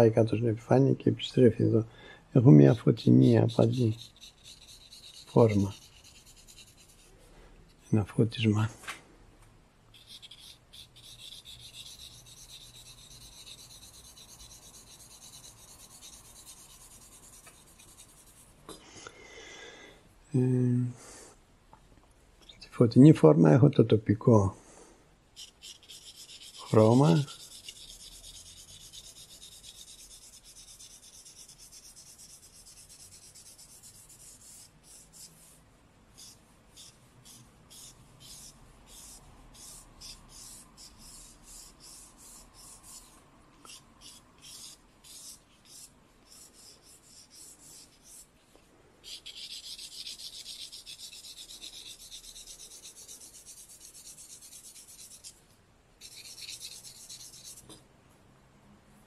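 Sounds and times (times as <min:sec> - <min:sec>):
charcoal scratching on paper: 0:02.5 - 0:07.2, 0:09.9 - 0:18.6, 0:25.4 - 0:48.4, 0:49.0 - 0:55.4, 0:56.0 - 0:57.8.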